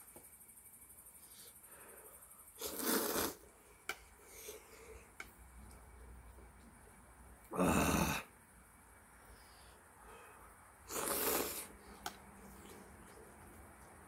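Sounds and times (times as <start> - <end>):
person slurping noodles: 2.6 - 3.4, 10.9 - 11.8.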